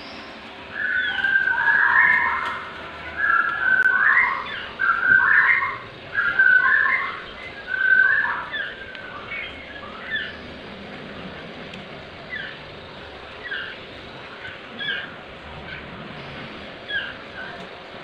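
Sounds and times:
bird chicks whistly calls: 0.0 - 10.5.

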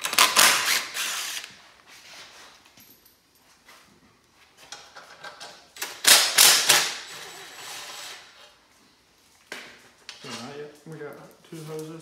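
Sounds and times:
cordless drill running: 0.6 - 1.5.

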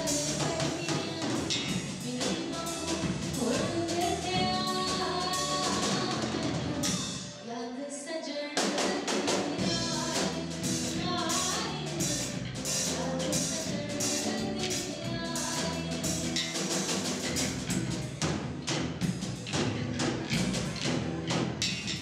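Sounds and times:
bass: 0.0 - 7.4, 8.8 - 22.0
person singing: 0.0 - 16.6.

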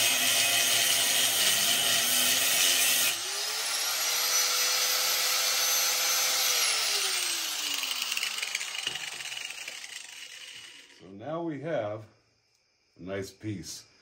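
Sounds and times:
grinder cutting metal: 0.0 - 11.0
grinder wheel whining and spinning down: 0.0 - 11.0.

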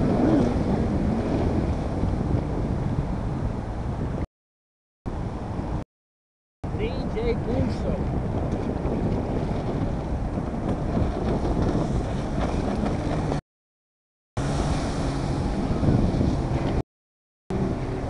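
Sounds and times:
jet ski engine drone: 0.0 - 4.0, 14.4 - 16.8, 17.5 - 18.0
wind buffeting microphone: 0.0 - 4.3, 6.7 - 13.4, 14.4 - 16.8.

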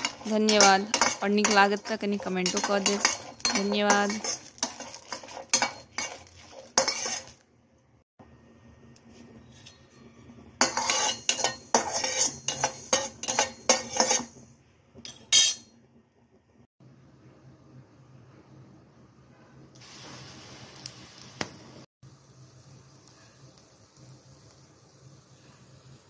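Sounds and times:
spatula scraping metal pan: 0.0 - 7.4, 10.6 - 14.4.

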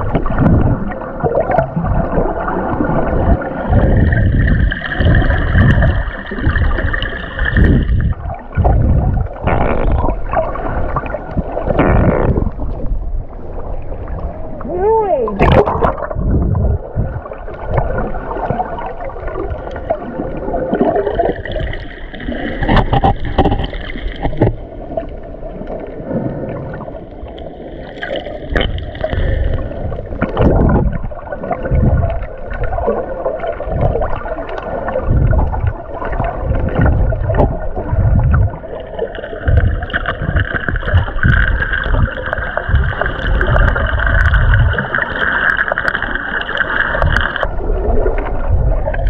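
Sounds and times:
low underwater thuds: 0.0 - 13.3, 15.3 - 19.5, 22.5 - 25.0, 28.5 - 33.0, 33.6 - 45.8
underwater water sloshing: 0.0 - 49.0.

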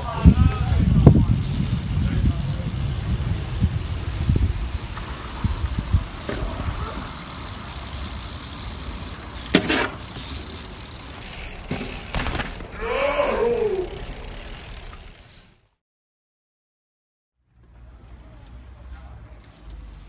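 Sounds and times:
bike tyres rolling on concrete: 0.0 - 15.8, 17.5 - 20.0
bike knocks: 4.8 - 8.3, 9.4 - 10.7, 11.6 - 12.8.

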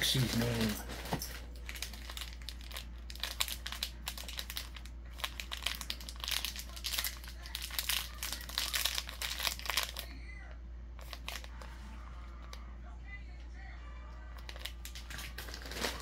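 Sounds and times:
plastic packet crinkling: 0.0 - 10.2, 11.0 - 11.7, 14.4 - 16.0.

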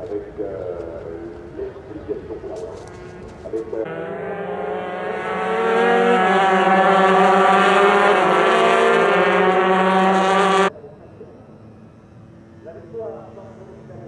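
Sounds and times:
two-stroke engine high revs: 2.9 - 10.7.

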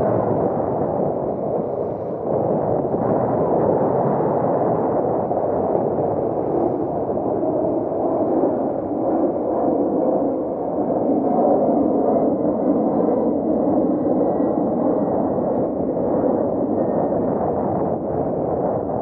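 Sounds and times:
water rushing along a hull: 0.0 - 2.2
wind noise: 0.0 - 19.0.

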